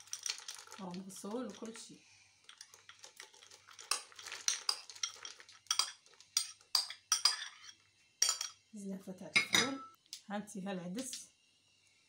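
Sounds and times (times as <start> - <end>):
metal spoon clinking on china bowl: 4.7 - 8.6.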